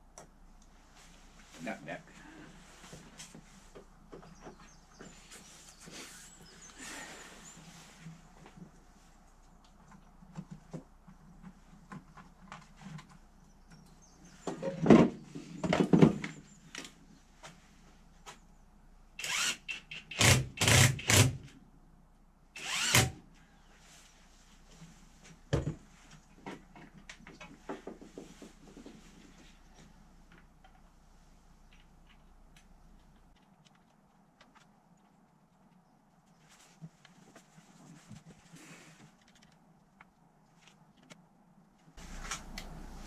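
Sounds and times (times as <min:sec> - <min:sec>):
low steady hum: 0:00.0 - 0:19.4, 0:21.3 - 0:43.0.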